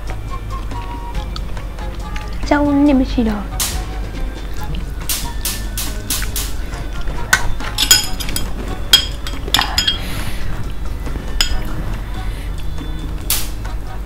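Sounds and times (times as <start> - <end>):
metal utensils clinking: 7.0 - 10.2, 11.3 - 11.8.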